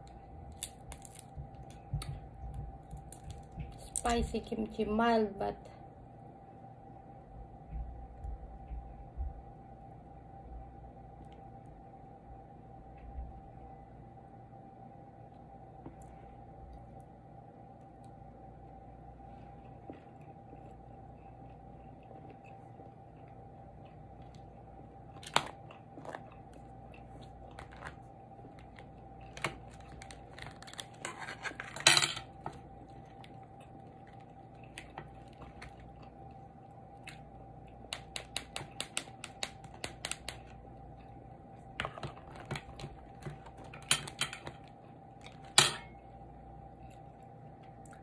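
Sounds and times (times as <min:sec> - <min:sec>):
lobster shell cracking: 0:00.0 - 0:01.8, 0:02.8 - 0:04.1, 0:25.2 - 0:26.2, 0:27.4 - 0:36.0, 0:37.8 - 0:40.6
faint steady hum: 0:00.0 - 0:48.0.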